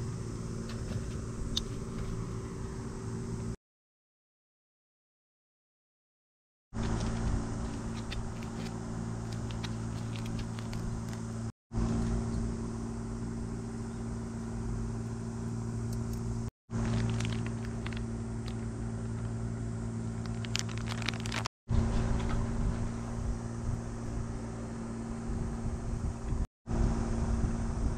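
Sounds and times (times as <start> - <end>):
low mechanical hum: 0.0 - 3.6, 6.8 - 27.9
small clicks and crackles: 6.8 - 12.2, 15.9 - 19.4, 20.2 - 21.5.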